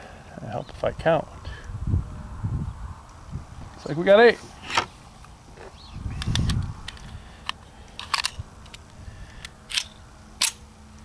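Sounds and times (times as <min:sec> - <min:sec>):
pistol clicks and clacks: 0:09.4 - 0:10.6.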